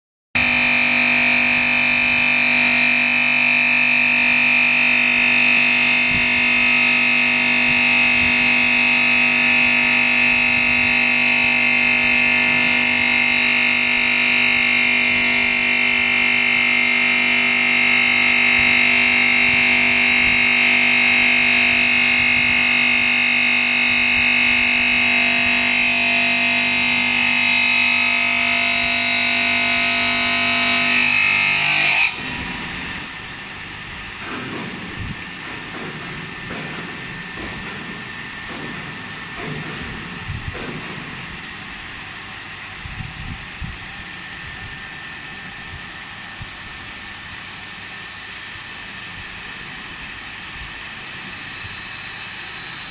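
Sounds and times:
saw blade whining: 0:00.4 - 0:39.2.

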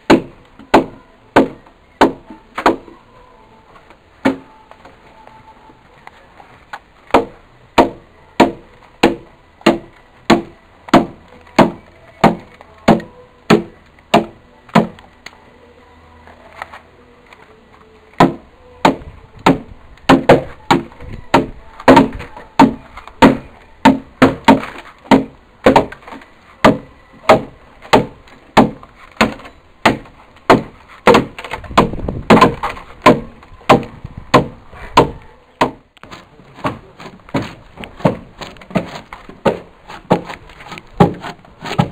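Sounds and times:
axe chopping into a log: 0:26.6 - 0:35.8.

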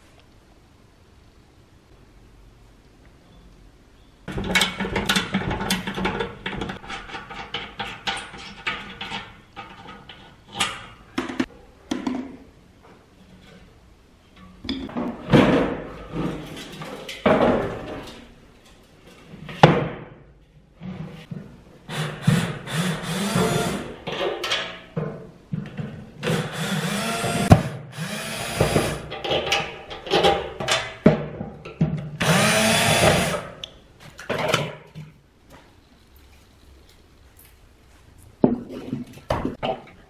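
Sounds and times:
power drill motor whining: 0:22.7 - 0:23.8, 0:26.3 - 0:29.0, 0:32.2 - 0:33.4.

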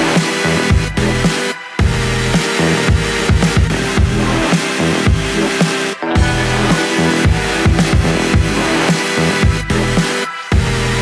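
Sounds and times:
electronic music: 0:00.0 - 0:11.0
deep bass drum hits: 0:06.2 - 0:08.6.

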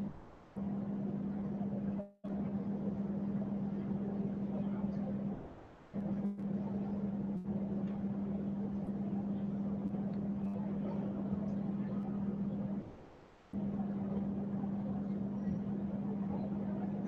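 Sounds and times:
room hum with low tone: 0:00.0 - 0:17.0.

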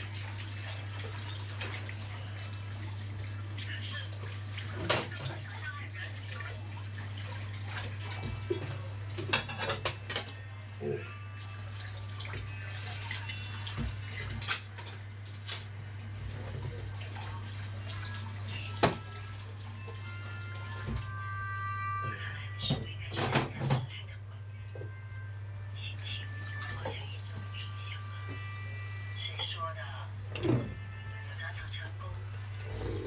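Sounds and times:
cutlery and dishes clinking: 0:09.2 - 0:10.4, 0:14.2 - 0:15.7.

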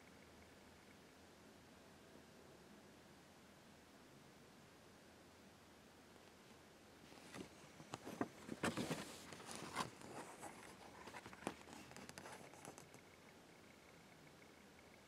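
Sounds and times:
paper rustling and scraping: 0:07.1 - 0:12.8.

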